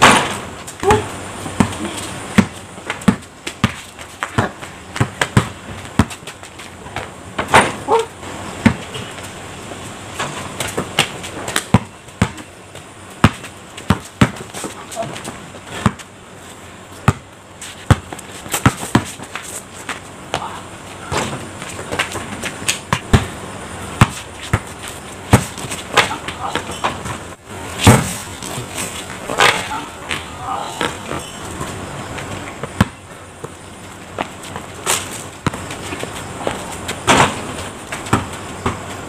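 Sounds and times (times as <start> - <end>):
basketball bouncing on concrete: 0.0 - 9.4, 10.2 - 16.2, 16.9 - 23.4, 24.0 - 27.2, 27.8 - 39.0.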